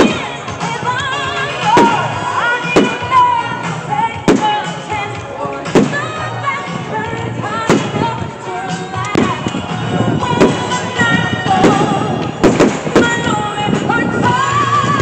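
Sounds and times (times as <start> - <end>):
loud music: 0.0 - 15.0
fireworks bangs: 1.6 - 3.2, 5.7 - 6.1, 7.6 - 8.2, 10.2 - 13.5.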